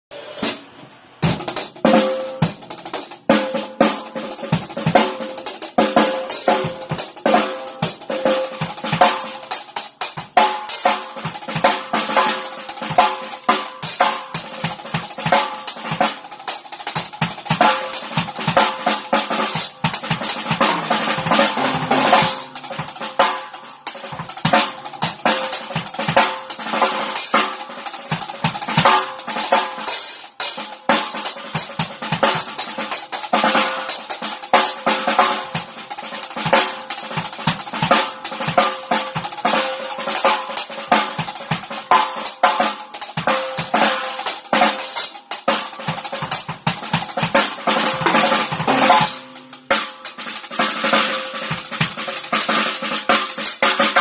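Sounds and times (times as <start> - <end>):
hi-hat patterns: 0.1 - 54.0
snare drum ringing: 17.3 - 30.2, 36.6 - 54.0.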